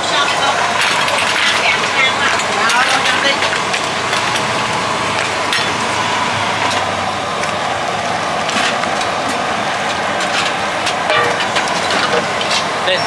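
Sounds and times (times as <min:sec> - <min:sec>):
roadside traffic: 0:00.0 - 0:13.0
ladle clinking against pot: 0:11.1 - 0:12.3.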